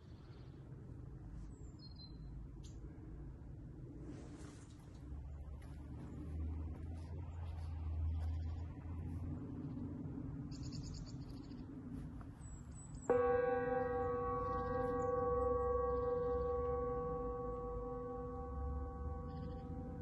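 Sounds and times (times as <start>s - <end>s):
singing bowl ringing: 13.0s - 20.0s.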